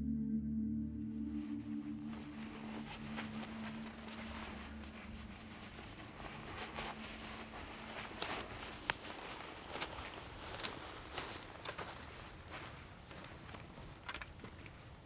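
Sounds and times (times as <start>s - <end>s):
soft ambient music: 0.0s - 10.8s
faint outdoor hiss: 1.1s - 15.0s.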